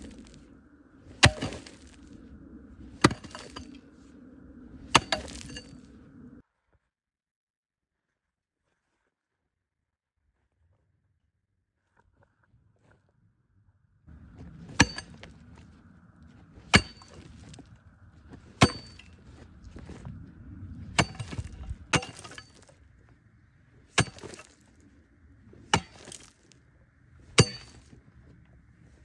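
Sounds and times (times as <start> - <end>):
rubble scraping and rustling: 0.0 - 6.4, 14.1 - 29.0
steel tool striking shale: 1.2 - 2.0, 3.0 - 3.8, 4.9 - 5.8, 14.7 - 15.3, 16.6 - 17.3, 18.6 - 19.2, 21.0 - 22.7, 24.0 - 24.6, 25.7 - 26.3, 27.4 - 27.9.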